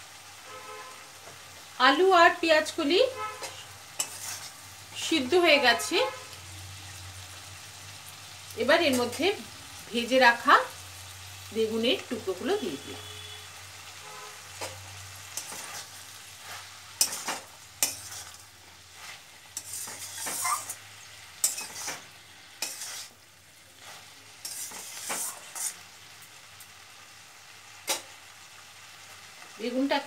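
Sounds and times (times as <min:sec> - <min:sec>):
faint sizzle: 0:00.0 - 0:30.0
spatula scraping metal pan: 0:03.2 - 0:04.6, 0:14.5 - 0:23.2, 0:23.8 - 0:25.8.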